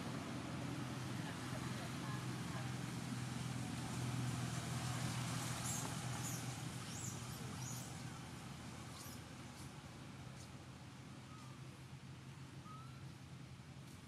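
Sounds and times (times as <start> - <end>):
vehicle engine humming: 0.0 - 14.0.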